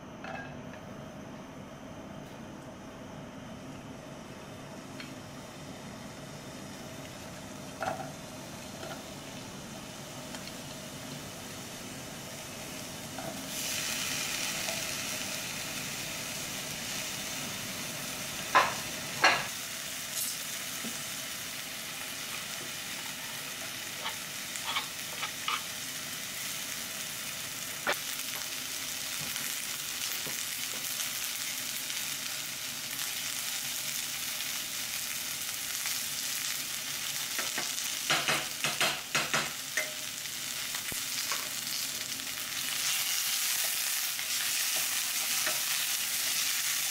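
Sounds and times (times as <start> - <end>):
onions sizzling in oil: 4.3 - 46.9
wooden spatula knocking on pan: 38.1 - 39.5.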